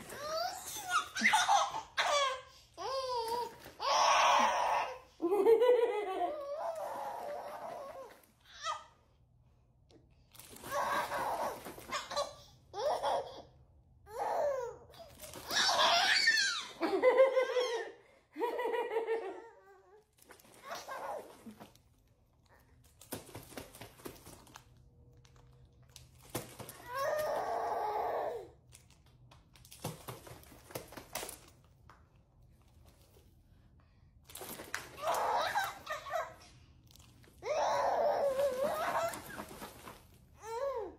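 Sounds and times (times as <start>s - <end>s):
baby girl laughing: 0.0s - 8.0s, 15.3s - 19.7s, 37.4s - 39.8s.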